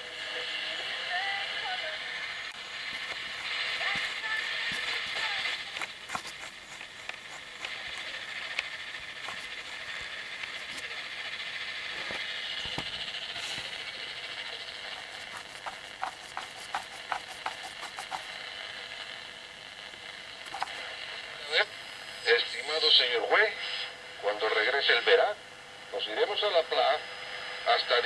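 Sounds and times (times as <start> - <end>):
radio band noise hiss: 0.0 - 28.0
static crackle clicks: 2.2 - 21.4.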